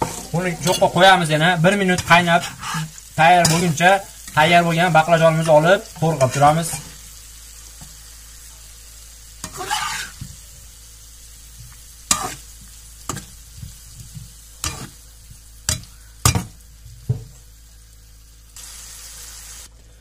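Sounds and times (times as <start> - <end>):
spatula scraping a pan: 0.0 - 4.4, 9.4 - 10.5, 11.6 - 17.1
vegetables sizzling in oil: 0.0 - 20.0.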